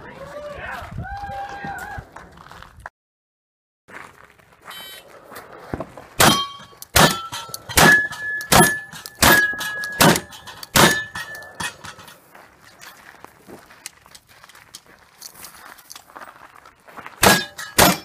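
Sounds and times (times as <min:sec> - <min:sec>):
shotgun shots: 0:06.2 - 0:11.2, 0:17.2 - 0:18.0
metallic ring of steel targets: 0:06.2 - 0:12.2, 0:17.2 - 0:18.0.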